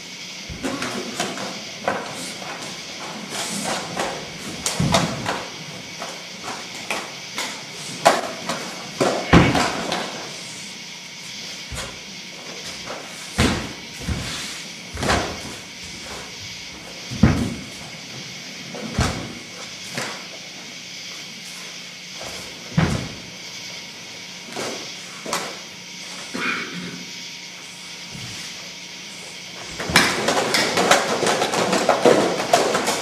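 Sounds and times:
feet stamping: 0.4 - 10.4, 11.3 - 20.4, 21.5 - 23.4, 29.5 - 33.0
thuds and slaps: 3.7 - 5.4, 6.4 - 10.2, 12.7 - 16.3, 17.1 - 17.8, 18.8 - 20.2, 22.2 - 23.2.

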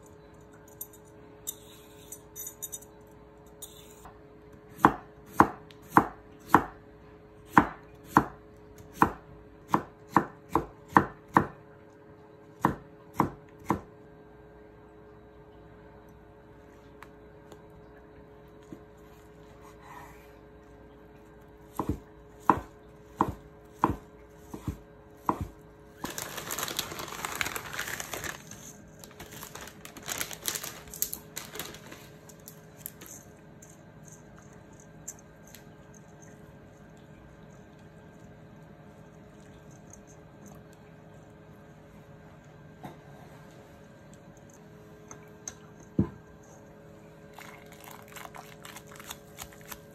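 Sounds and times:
plastic bag crinkling: 25.9 - 33.3, 47.3 - 49.9.

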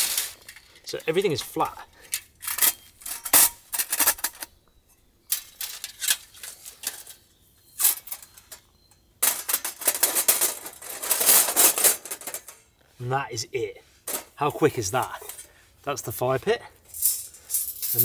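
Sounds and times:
steel panels clattering: 0.0 - 4.5, 5.3 - 12.7.

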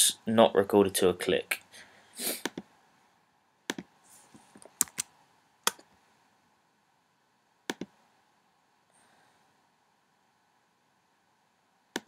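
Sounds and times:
computer keyboard and mouse clicks: 2.4 - 2.7, 3.7 - 3.9, 4.6 - 5.1, 7.7 - 8.0.

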